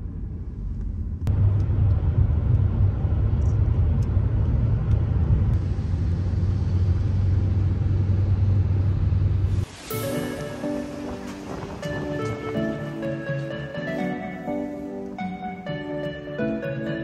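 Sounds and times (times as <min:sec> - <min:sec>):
car interior road and engine noise: 0:00.0 - 0:17.0.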